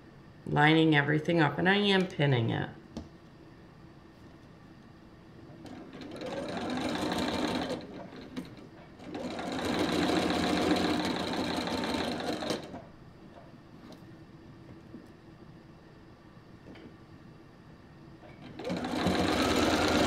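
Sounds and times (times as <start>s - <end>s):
sewing machine stitching: 5.5s - 12.8s, 18.3s - 20.0s.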